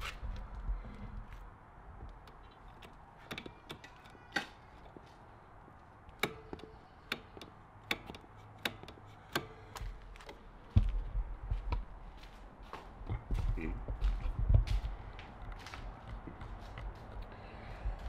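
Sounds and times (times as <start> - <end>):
brake pedal clicking: 6.1 - 10.4.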